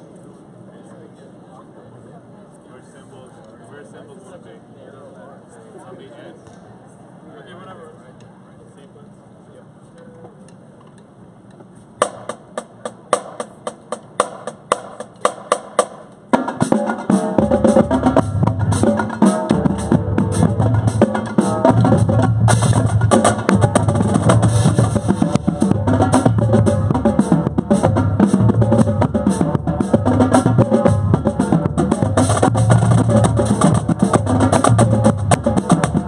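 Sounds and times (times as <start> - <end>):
drum line playing: 12.0 - 36.0.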